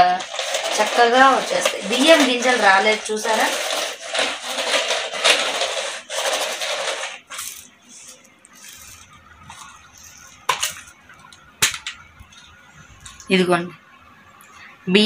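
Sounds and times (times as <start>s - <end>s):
carpet sweeper scratchy sweeping: 0.0s - 10.5s.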